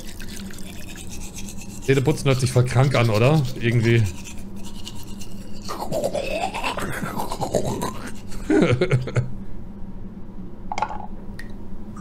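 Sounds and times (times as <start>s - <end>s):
teeth brushing with toothbrush: 0.0s - 8.5s.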